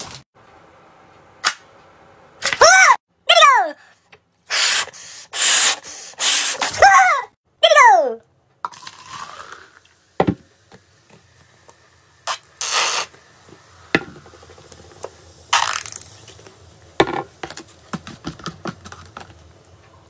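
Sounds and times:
short hissing noises: 0:04.4 - 0:06.8, 0:12.2 - 0:13.8
soda fizzing and crackling: 0:08.6 - 0:17.9.

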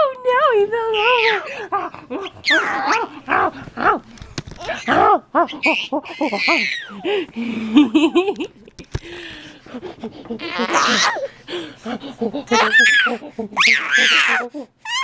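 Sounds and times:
baby squealing: 0:01.0 - 0:01.5, 0:02.4 - 0:03.1, 0:05.6 - 0:07.0, 0:10.5 - 0:11.2, 0:12.6 - 0:15.0
person and baby laughing: 0:12.2 - 0:14.6.

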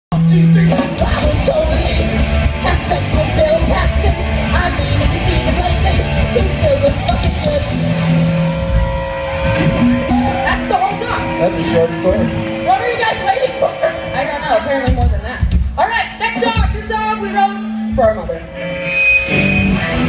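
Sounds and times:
person singing: 0:00.1 - 0:08.1
bass guitar: 0:00.1 - 0:20.0
drums: 0:00.1 - 0:20.0
electric guitar: 0:00.1 - 0:20.0.

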